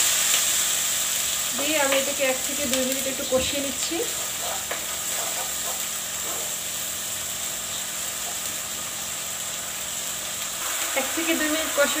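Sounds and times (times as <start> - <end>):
paste sizzling in frying pan: 0.0 - 12.0
wooden spatula stirring: 4.0 - 6.5.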